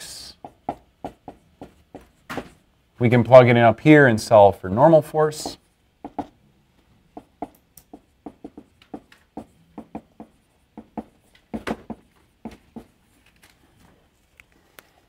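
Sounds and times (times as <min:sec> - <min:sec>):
marker writing on whiteboard: 0:00.4 - 0:02.5, 0:05.3 - 0:06.4, 0:07.1 - 0:13.0.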